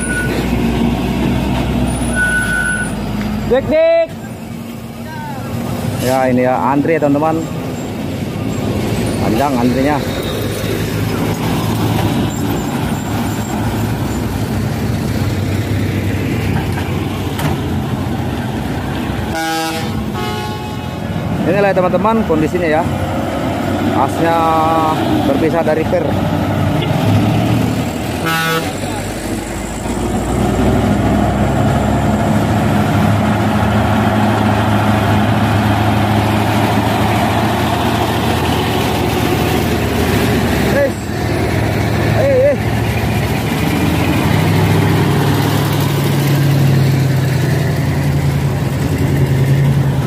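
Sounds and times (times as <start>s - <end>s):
heavy trucks driving past: 0.0s - 50.0s
vehicle horn toot: 19.3s - 20.9s, 28.2s - 28.8s
truck diesel engine idling: 27.7s - 50.0s.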